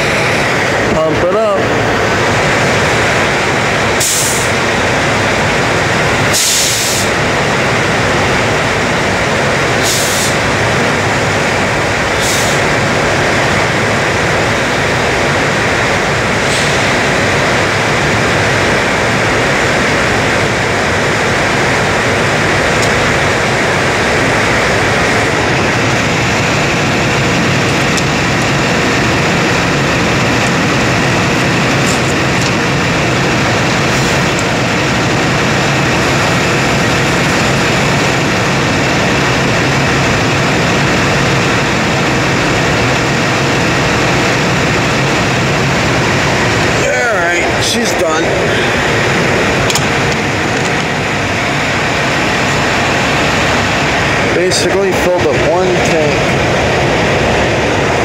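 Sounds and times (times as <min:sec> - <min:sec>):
fuel rushing into tank: 0:00.0 - 0:58.0
short hisses: 0:04.0 - 0:04.5, 0:09.8 - 0:10.4.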